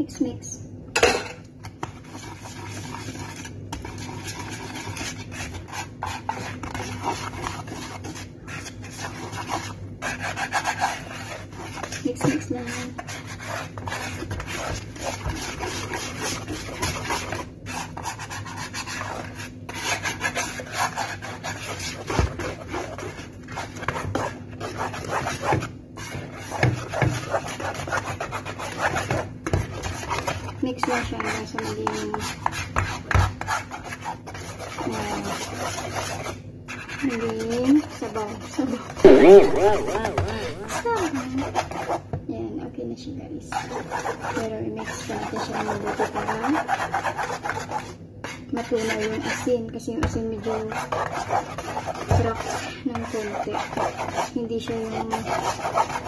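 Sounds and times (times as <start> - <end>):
whisk scraping in a bowl: 1.6 - 42.2, 43.4 - 56.0.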